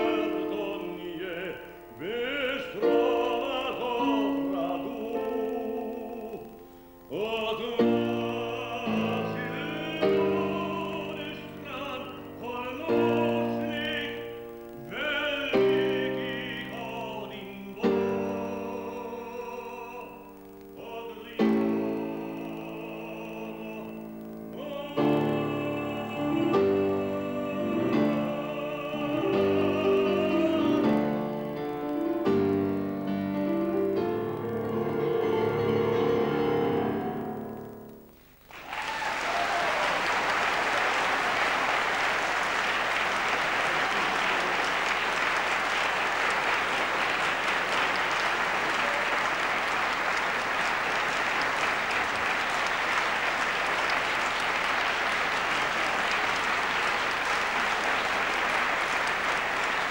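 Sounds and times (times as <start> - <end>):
piano accompaniment: 0.0 - 38.2
man singing classical song: 0.0 - 38.4
audience applause: 38.4 - 59.9.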